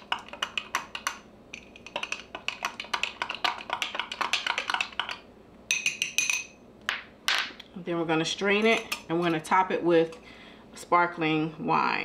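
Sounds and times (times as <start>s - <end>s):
spoon clinking against glass: 5.7s - 6.6s.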